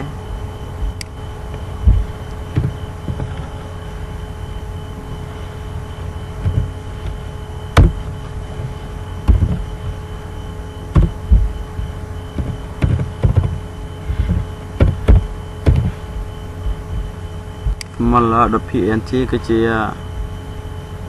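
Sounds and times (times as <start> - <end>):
steady electrical hum: 0.0 - 21.0.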